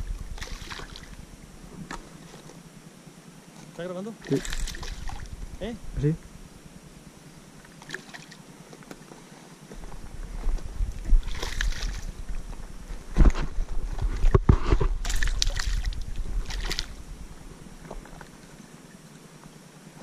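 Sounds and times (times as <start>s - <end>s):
low microphone rumble: 0.0s - 2.9s, 4.1s - 7.6s, 9.7s - 19.0s
fish splashing in water: 0.3s - 1.2s, 4.2s - 5.3s, 7.7s - 8.4s, 11.1s - 12.2s, 14.9s - 17.0s.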